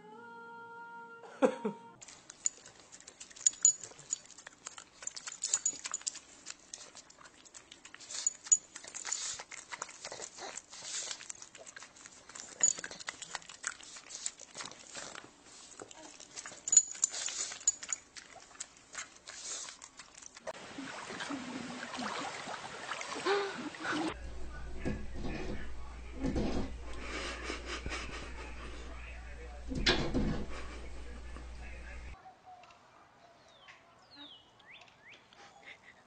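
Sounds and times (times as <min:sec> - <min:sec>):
dog licking and snuffling: 0:02.0 - 0:20.6
metal collar tags jingling: 0:02.3 - 0:06.3, 0:08.1 - 0:09.4, 0:12.3 - 0:13.2, 0:16.4 - 0:18.2.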